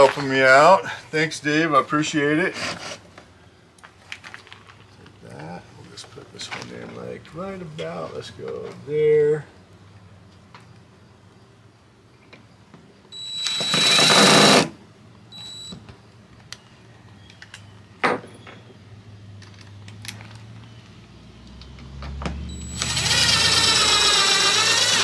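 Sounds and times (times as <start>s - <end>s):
cordless drill driving screws: 13.2s - 14.8s, 22.5s - 25.0s.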